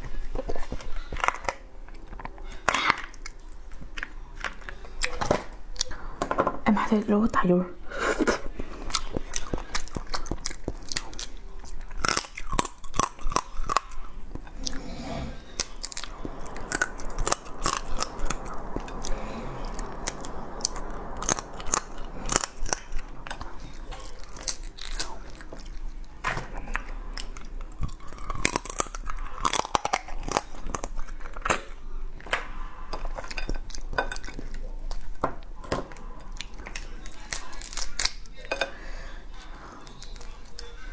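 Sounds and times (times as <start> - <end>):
chewing and sucking mouth sounds: 8.2 - 31.8
crab shell cracking and crunching: 8.9 - 14.1, 21.3 - 25.8, 26.7 - 31.7, 36.3 - 38.5.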